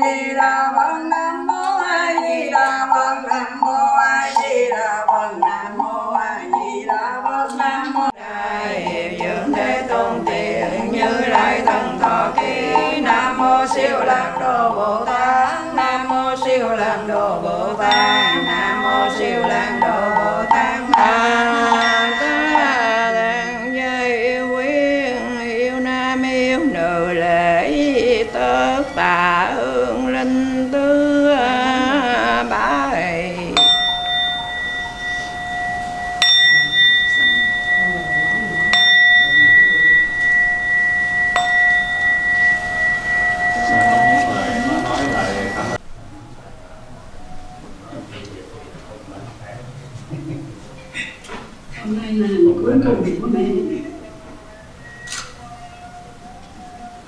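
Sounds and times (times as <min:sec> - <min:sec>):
nuns chanting: 0:00.0 - 0:45.8, 0:50.5 - 0:57.0
bowl bell ringing: 0:01.1 - 0:48.2, 0:51.6 - 0:57.0.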